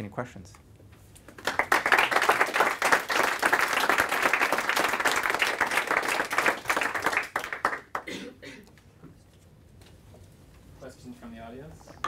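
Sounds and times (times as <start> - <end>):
audience applauding: 1.4 - 8.1.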